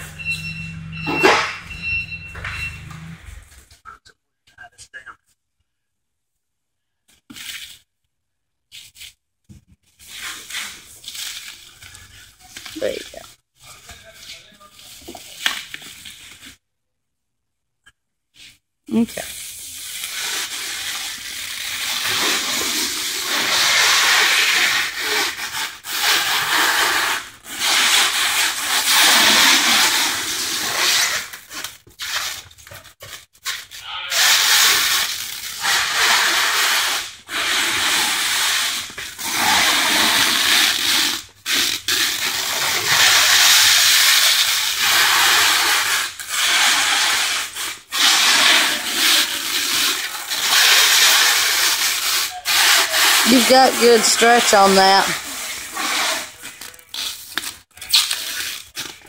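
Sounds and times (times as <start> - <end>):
stretch film unwinding crackle: 19.4 - 54.4, 55.3 - 59.0.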